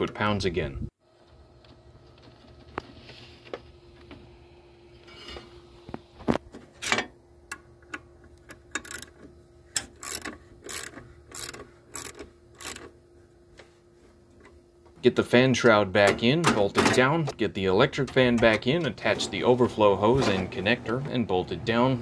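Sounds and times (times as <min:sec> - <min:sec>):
socket ratchet clicking: 0:08.5 - 0:12.9.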